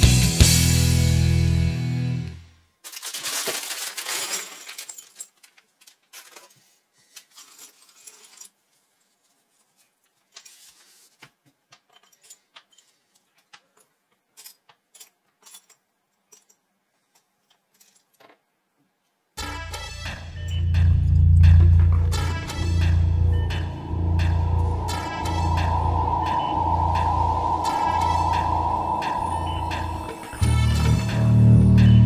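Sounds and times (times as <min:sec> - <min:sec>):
plastic bag rustling: 0:02.8 - 0:05.5
plastic pieces clattering onto desk: 0:02.8 - 0:08.6.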